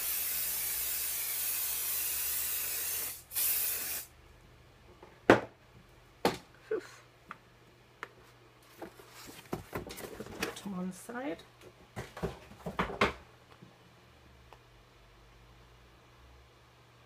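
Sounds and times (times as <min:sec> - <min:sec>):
aerosol can spraying: 0:00.0 - 0:04.1.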